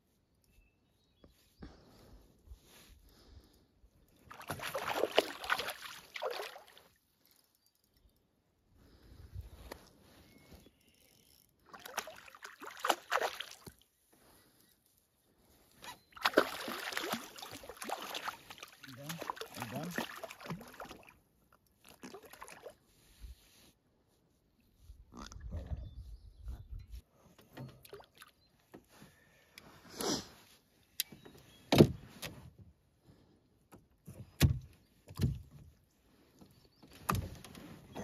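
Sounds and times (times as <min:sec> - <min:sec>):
fish thrashing in water: 0:04.3 - 0:06.8, 0:16.2 - 0:21.1.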